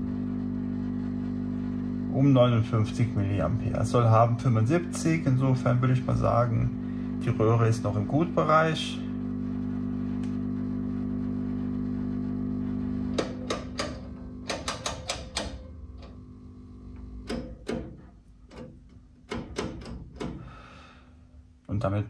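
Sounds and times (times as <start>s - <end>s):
valve tester humming: 0.0s - 21.5s
rotary switches clicking: 13.1s - 16.2s, 17.2s - 20.4s.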